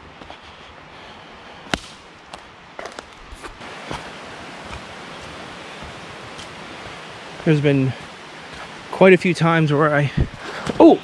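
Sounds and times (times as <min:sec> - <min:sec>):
steady outdoor hiss: 0:00.0 - 0:11.0
sharp crack: 0:01.7 - 0:02.2
footsteps on leaf litter: 0:02.8 - 0:09.2.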